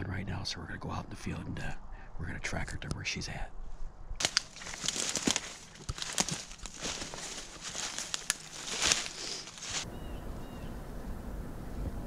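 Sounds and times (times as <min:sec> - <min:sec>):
footsteps crunching through dry leaves: 0:04.2 - 0:09.9
twigs snapping: 0:04.2 - 0:09.9.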